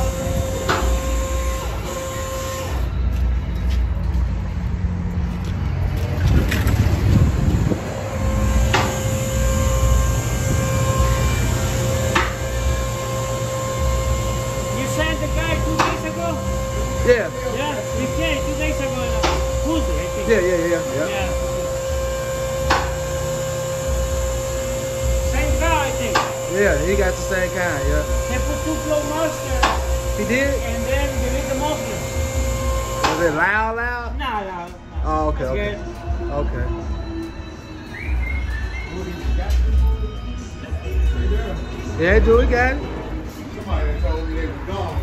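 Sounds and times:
steady hum: 0.0 - 33.7
low rumble: 3.0 - 15.7.

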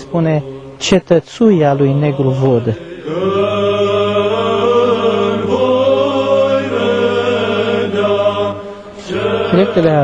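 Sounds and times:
choir chanting long notes: 0.0 - 1.0, 1.6 - 10.0
low drone: 0.0 - 10.0.

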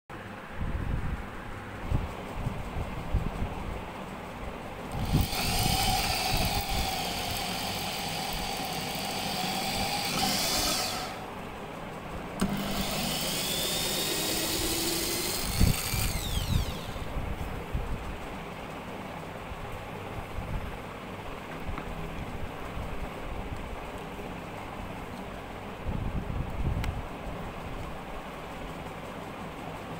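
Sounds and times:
electric drill boring through wood: 4.9 - 11.3, 12.4 - 17.1.

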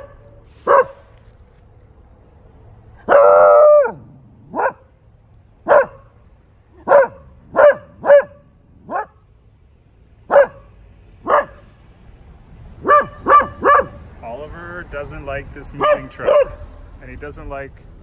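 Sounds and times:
dog barking: 0.0 - 1.0, 3.0 - 4.9, 5.6 - 6.1, 6.8 - 9.2, 10.3 - 11.7, 12.8 - 14.0, 15.8 - 16.7.

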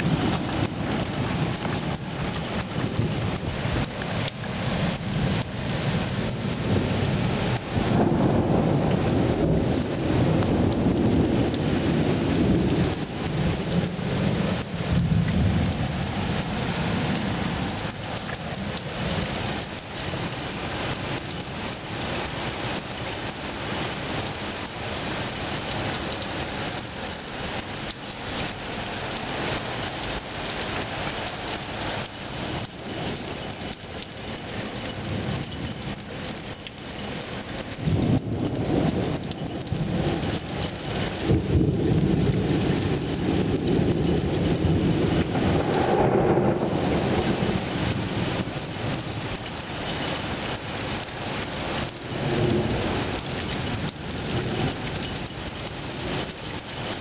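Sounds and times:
rolling thunder: 0.0 - 18.0, 37.6 - 50.0
heavy rain falling: 0.0 - 57.0.

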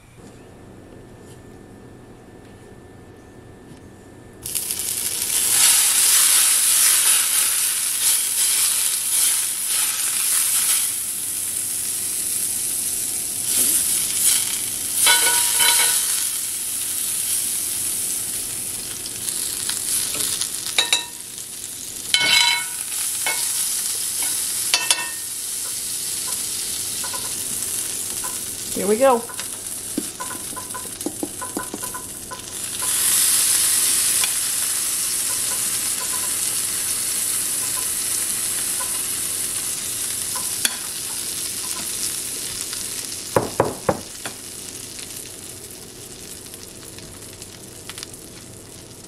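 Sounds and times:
margarine sizzling in a skillet: 4.4 - 49.0
metal spoon clinking on a pan: 15.0 - 16.0, 20.8 - 21.2, 22.2 - 23.6, 24.2 - 25.2, 27.0 - 27.4, 30.2 - 33.0, 35.3 - 36.4, 38.6 - 39.0.

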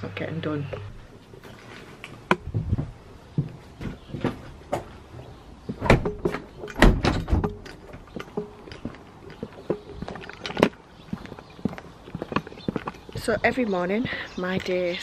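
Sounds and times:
footsteps on paving slabs: 1.4 - 6.6, 7.4 - 15.0
door pulled shut: 5.8 - 7.7
loud knocks and rattles: 5.8 - 8.9.

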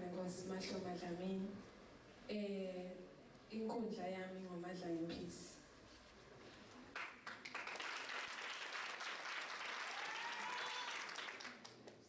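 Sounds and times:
audience applauding: 6.9 - 12.0.

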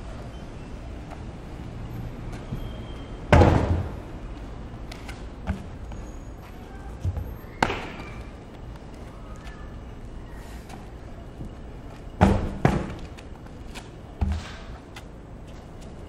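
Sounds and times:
feet jumping on a tire: 2.2 - 9.8, 10.6 - 16.0
tire thudding on concrete: 2.4 - 4.2, 4.9 - 6.1, 7.0 - 8.4, 11.4 - 15.1
feet landing slap: 7.0 - 8.4.

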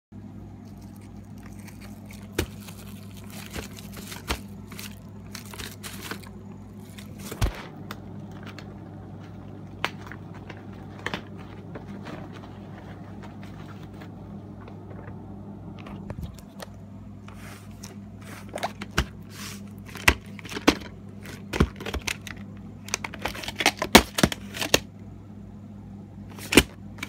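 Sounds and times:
steady low hum: 0.1 - 27.0
plastic wrapping crinkling: 0.6 - 14.8.

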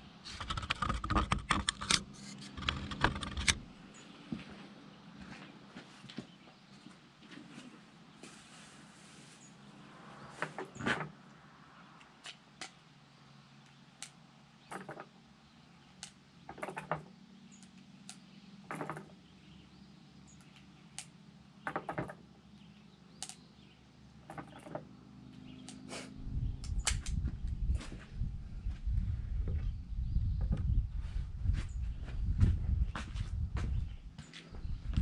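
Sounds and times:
sharp clicks and knocks: 0.3 - 3.6, 14.0 - 15.1, 16.0 - 19.2, 20.4 - 22.2, 24.2 - 24.9
low rumble: 26.2 - 35.0.

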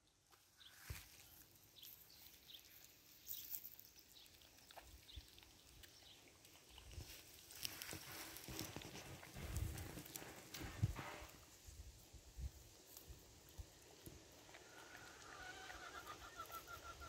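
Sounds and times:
goats chewing clicks: 1.8 - 11.2.

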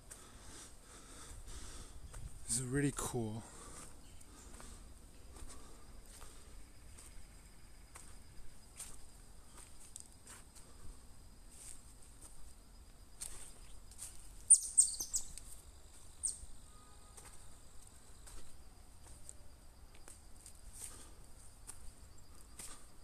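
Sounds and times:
insects chirring: 0.0 - 23.0
bird chirps: 14.4 - 15.5, 16.1 - 17.1.

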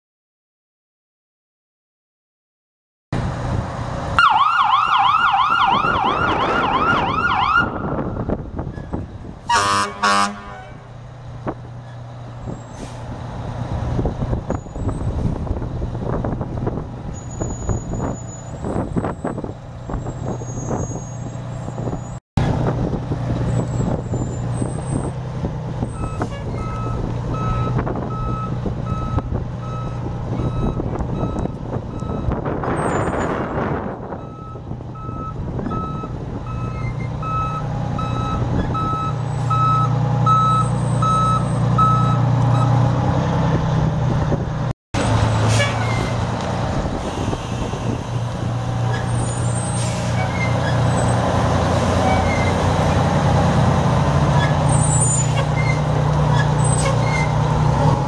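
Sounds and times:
fire truck siren: 4.1 - 8.5, 9.5 - 10.8
diesel engine running: 7.7 - 58.0
truck horn blasts: 9.4 - 10.9, 45.0 - 46.3
reverse alarm beeping: 34.2 - 42.7.

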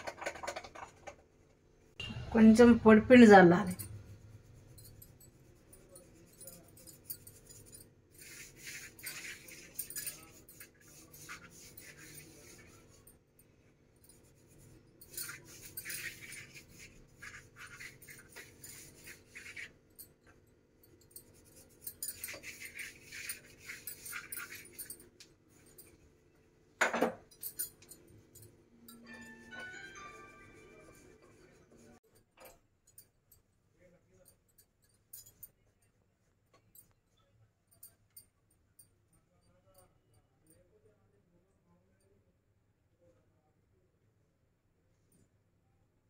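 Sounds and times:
hand rubbing flour on dough: 3.9 - 13.2, 14.1 - 19.9, 21.3 - 26.3.

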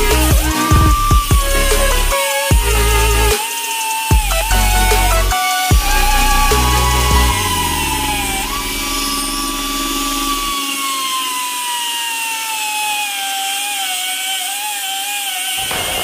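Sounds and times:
bass-heavy electronic music: 0.0 - 11.2
cut-off disc grinding steel: 0.0 - 16.0.

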